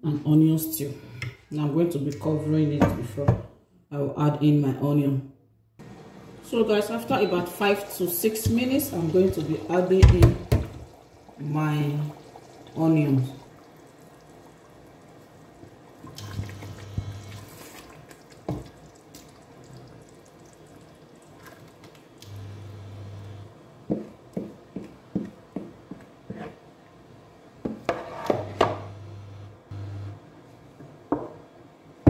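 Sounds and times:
low hum: 0:28.8 - 0:30.2.

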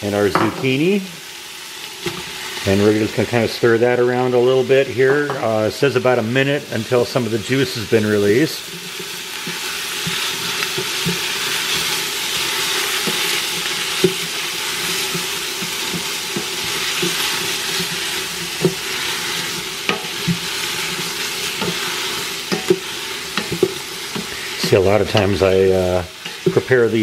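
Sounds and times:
vegetables sizzling in oil: 0:00.0 - 0:27.0
wooden spoon scraping a pot: 0:08.6 - 0:27.0.

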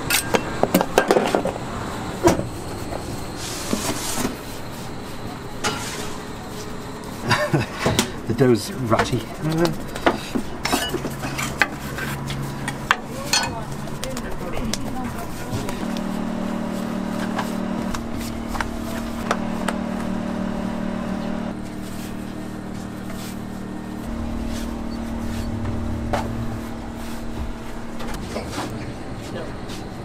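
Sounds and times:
low motor hum: 0:15.0 - 0:29.2.

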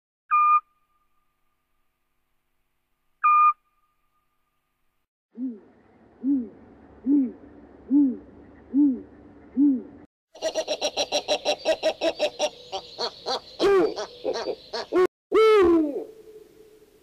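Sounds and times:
owl hooting: 0:05.4 - 0:16.8.

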